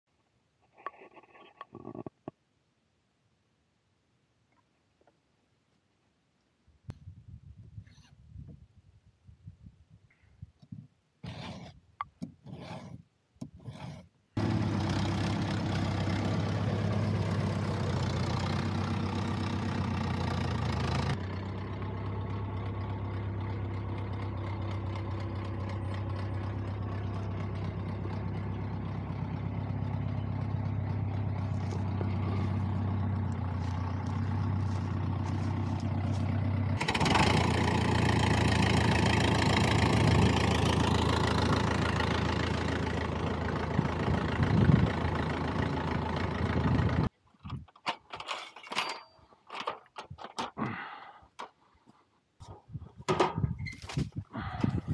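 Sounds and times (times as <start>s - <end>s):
tractor engine idling: 14.4s - 47.1s.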